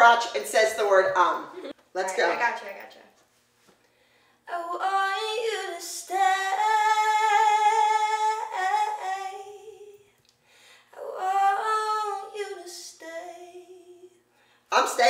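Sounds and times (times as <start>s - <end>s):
woman singing unaccompanied: 4.5s - 10.1s, 11.0s - 14.2s.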